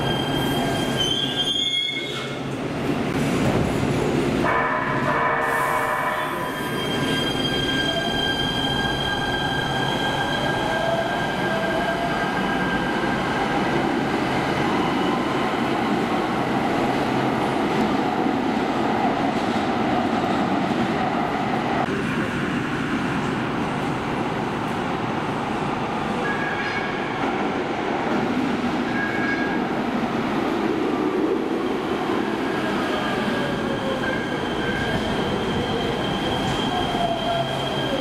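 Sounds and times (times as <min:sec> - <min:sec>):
train approaching platform: 0:00.0 - 0:38.0.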